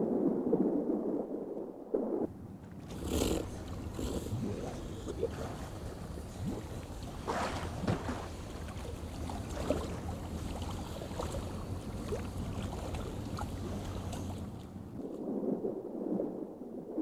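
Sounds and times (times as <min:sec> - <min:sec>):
steady low hum: 0:02.0 - 0:15.1
water splashing and slapping: 0:02.4 - 0:15.6
sharp splashes: 0:02.5 - 0:15.0.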